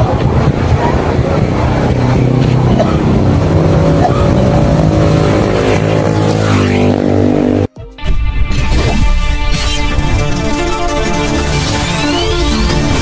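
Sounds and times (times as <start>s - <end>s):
car engines passing: 0.0s - 7.7s
steady engine hum: 0.0s - 7.8s
motorcycle engine passing: 0.1s - 7.7s.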